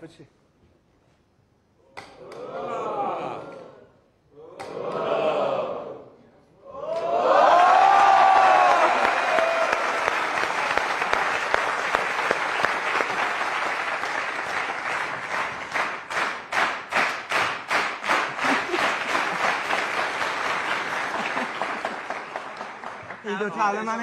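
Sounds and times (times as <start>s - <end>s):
studio audience applauding: 7.0s - 24.0s.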